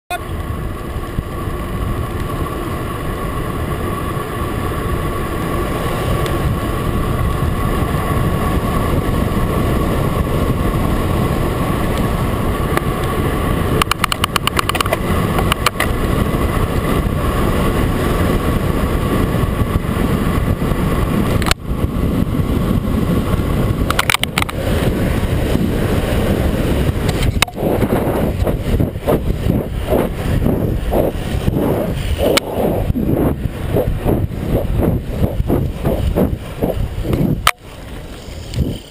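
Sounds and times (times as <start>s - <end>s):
bicycle tyre noise on pavement: 0.1s - 38.9s
wind noise: 0.1s - 38.9s
camera knocking and rattling: 13.8s - 16.0s, 23.8s - 24.6s, 27.0s - 30.2s, 33.8s - 37.6s
rapid ticking: 26.8s - 37.7s.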